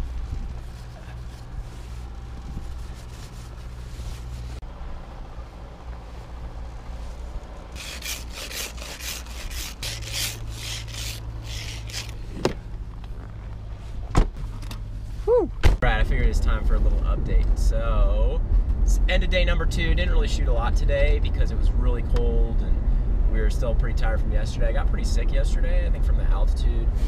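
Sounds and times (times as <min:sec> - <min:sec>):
car engine idling hum: 0:00.0 - 0:27.0
brushing snow off car window: 0:00.1 - 0:04.6
ice scraper rasping on windshield: 0:07.7 - 0:12.2.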